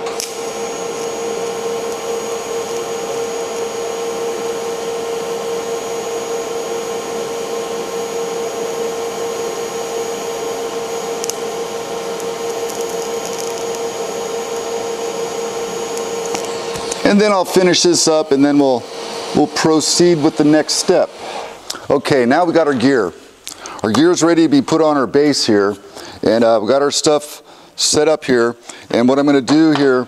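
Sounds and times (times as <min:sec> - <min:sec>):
welding arc hissing and buzzing: 0:00.0 - 0:22.7.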